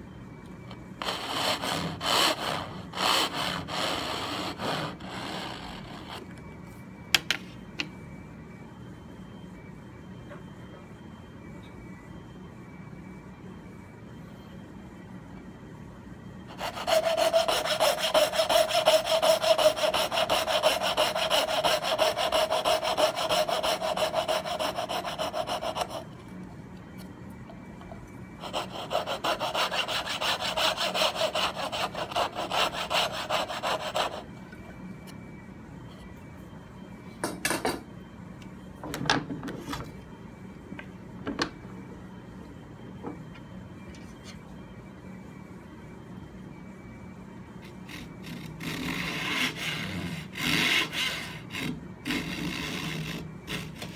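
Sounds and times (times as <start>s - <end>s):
saw cutting wood: 16.5s - 26.0s, 28.4s - 34.2s.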